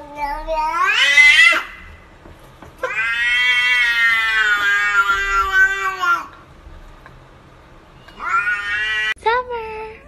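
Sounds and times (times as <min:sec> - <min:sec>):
cat meowing: 0:00.0 - 0:01.8, 0:02.8 - 0:06.3, 0:08.0 - 0:09.2.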